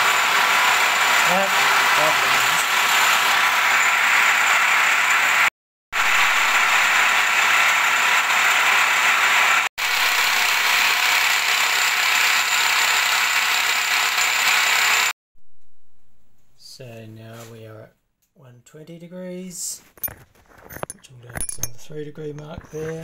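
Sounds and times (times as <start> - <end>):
milling machine cutting steel: 0.0 - 15.1.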